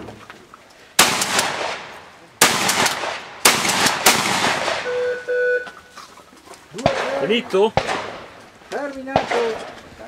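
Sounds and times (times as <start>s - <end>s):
shotgun shots with echo: 1.0s - 5.0s, 6.8s - 8.4s, 9.1s - 9.7s.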